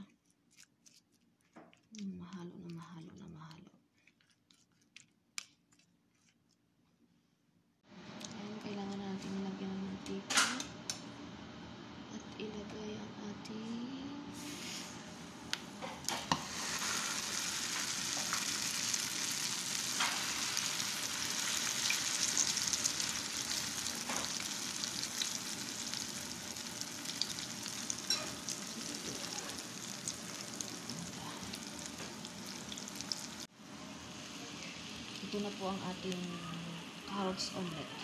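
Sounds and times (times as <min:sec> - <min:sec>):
egg frying in hot oil: 0:16.3 - 0:33.5, 0:34.1 - 0:37.9
oil popping and crackling: 0:16.3 - 0:33.5.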